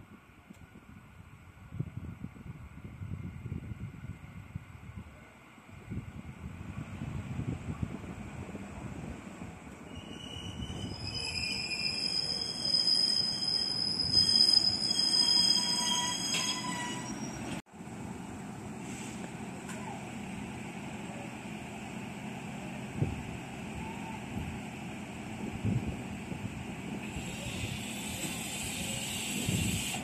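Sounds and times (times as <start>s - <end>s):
train rumble: 0.1s - 30.0s
train squealing: 9.8s - 17.6s, 27.0s - 30.0s.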